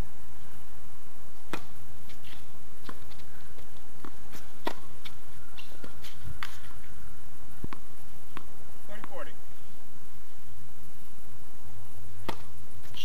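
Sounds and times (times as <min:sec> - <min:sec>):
tennis ball hit by rackets: 0:01.4 - 0:06.8, 0:12.2 - 0:12.6
tennis ball bouncing on court: 0:01.5 - 0:06.7, 0:07.6 - 0:09.3, 0:12.2 - 0:12.6
footsteps on court: 0:01.5 - 0:07.0, 0:07.6 - 0:09.4.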